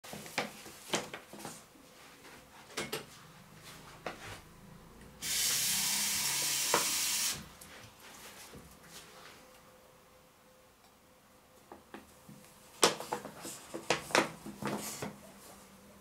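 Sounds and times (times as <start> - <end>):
loud steady hiss: 5.2 - 7.6.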